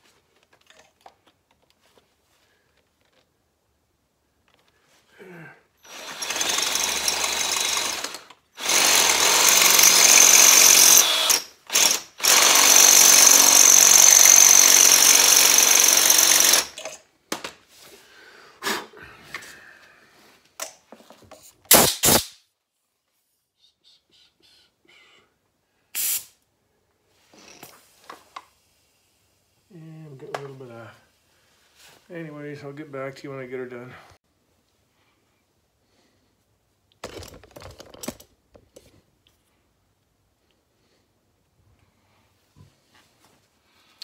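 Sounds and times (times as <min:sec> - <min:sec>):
power drill running: 0:05.8 - 0:17.0.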